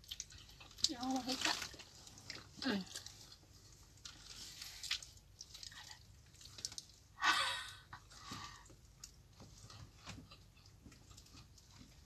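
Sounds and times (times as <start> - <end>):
people chewing and biting bread: 0.0 - 7.2, 7.9 - 12.0.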